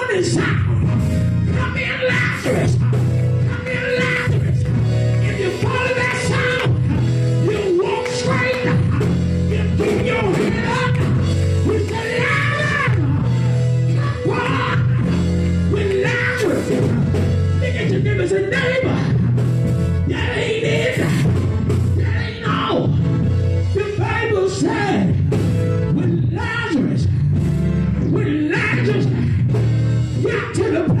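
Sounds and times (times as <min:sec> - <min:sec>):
deep bass notes: 0:00.0 - 0:31.0
drums: 0:00.0 - 0:31.0
man singing into a microphone: 0:01.5 - 0:04.7, 0:05.3 - 0:13.3, 0:14.2 - 0:15.1.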